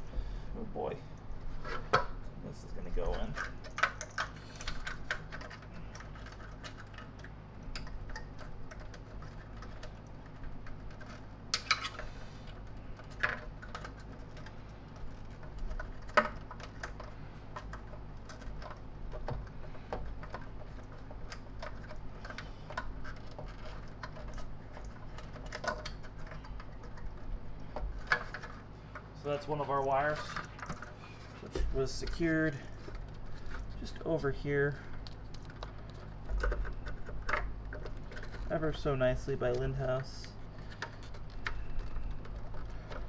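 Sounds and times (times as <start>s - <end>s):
steady low hum: 0.0s - 43.0s
plastic parts clicking and tapping: 3.0s - 29.4s, 34.7s - 43.0s.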